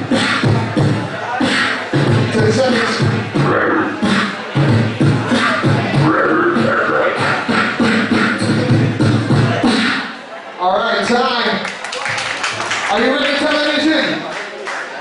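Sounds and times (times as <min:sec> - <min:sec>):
beatboxing through a microphone: 0:00.0 - 0:10.3
held vocal tones: 0:00.0 - 0:10.3.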